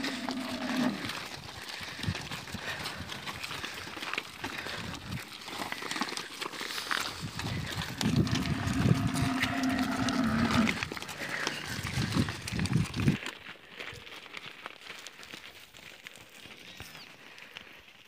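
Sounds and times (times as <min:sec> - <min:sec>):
cow mooing: 0:00.0 - 0:01.2, 0:08.0 - 0:11.5
hooves and footsteps on dirt: 0:00.0 - 0:18.0.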